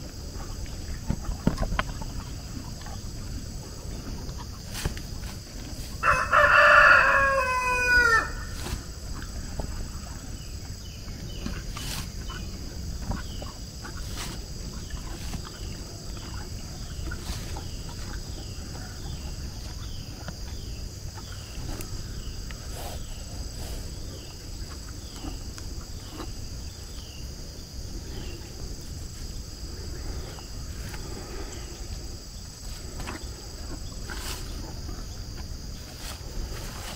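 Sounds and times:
high insect drone: 0.0s - 36.9s
rooster crowing: 6.0s - 8.5s.

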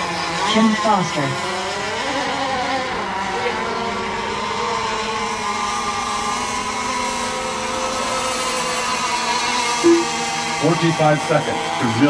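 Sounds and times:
model boat motors whining: 0.0s - 9.5s.

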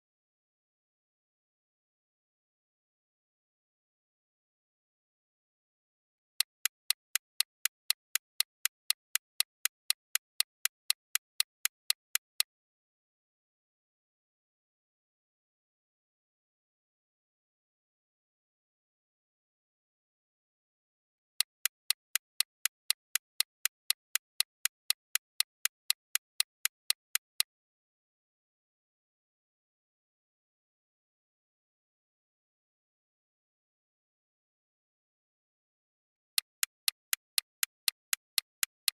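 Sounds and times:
clock ticking: 6.4s - 12.4s, 36.5s - 38.9s.

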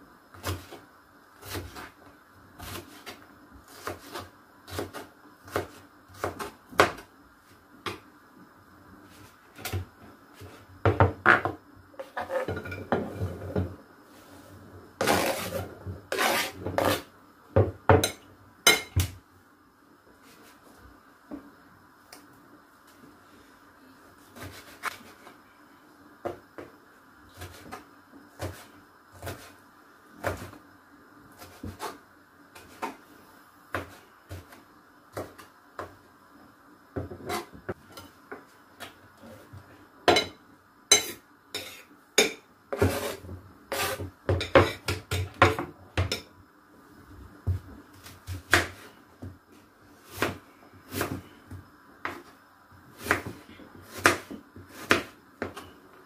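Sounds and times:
knife chopping on wooden board: 53.0s - 55.6s.

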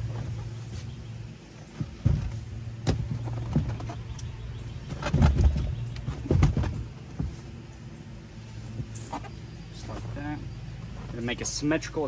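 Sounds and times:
steady low hum: 0.0s - 12.0s
knocks and thumps of chair: 4.8s - 7.4s.

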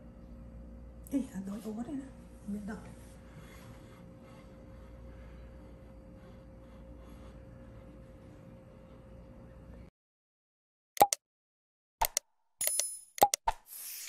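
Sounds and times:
faint steady hum: 0.0s - 9.9s.

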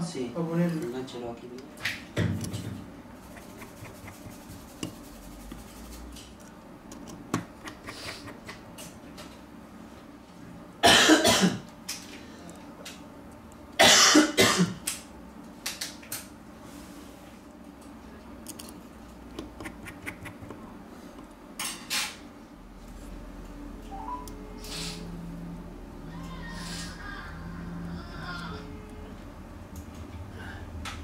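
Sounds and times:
screwdriver clicks and taps: 6.9s - 7.8s
person coughing: 10.8s - 11.6s, 13.8s - 14.8s.

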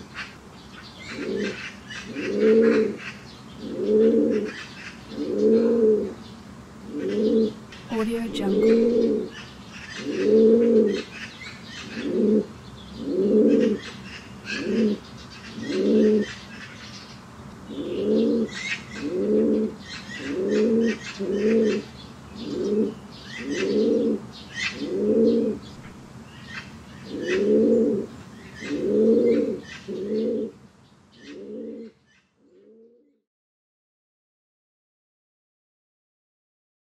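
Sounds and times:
pigeons cooing: 1.0s - 6.2s, 6.8s - 7.6s, 8.6s - 16.4s, 17.7s - 30.6s, 31.2s - 32.9s.

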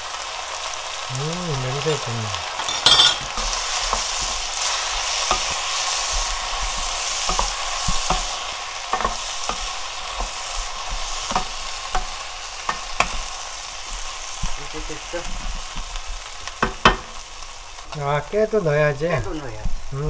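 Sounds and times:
food sizzling in frying pan: 0.0s - 20.0s
spatula scraping pan: 2.6s - 14.6s.

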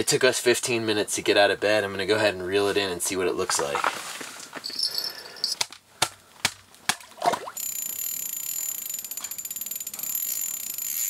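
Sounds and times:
gear clicking and knocking: 7.6s - 11.0s
spinning reel ticking and whining: 7.6s - 11.0s.

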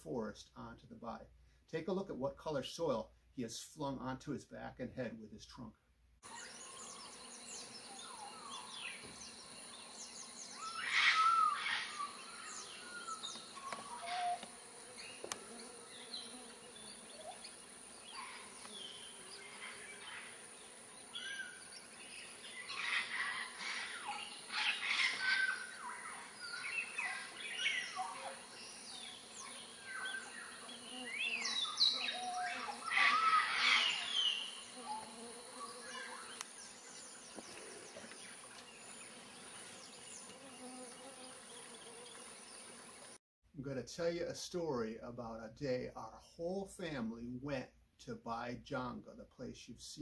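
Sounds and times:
birds chirping and calling: 6.2s - 43.1s
high insect drone: 6.3s - 43.2s.

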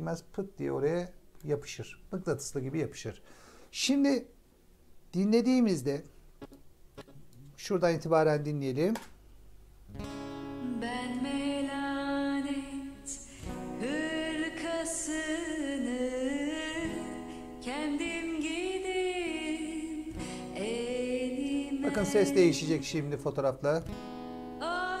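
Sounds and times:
song with singing voice: 10.6s - 23.3s, 24.6s - 25.0s.

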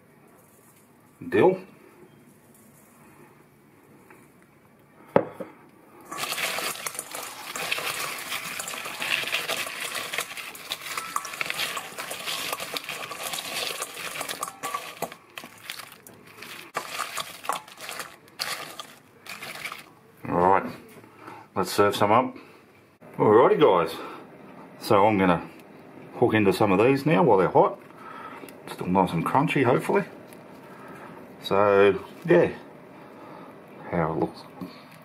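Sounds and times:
crisp food rattling in metal bowl: 6.1s - 19.9s.

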